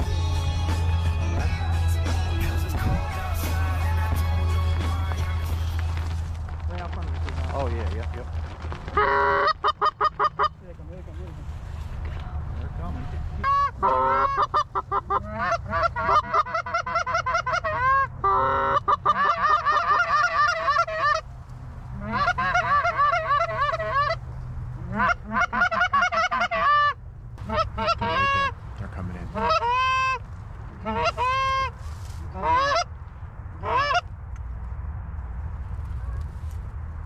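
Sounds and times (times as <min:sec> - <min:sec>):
goose call honks and clucks: 0:08.9 - 0:10.6, 0:13.0 - 0:21.3, 0:21.9 - 0:33.0, 0:33.6 - 0:34.1.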